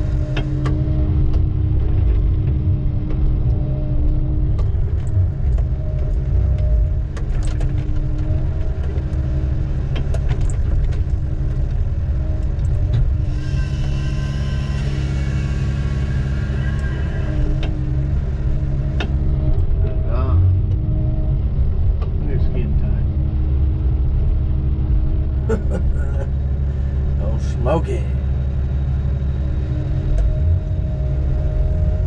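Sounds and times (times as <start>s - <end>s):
diesel engine running: 0.0s - 32.0s
high whine: 0.0s - 32.0s.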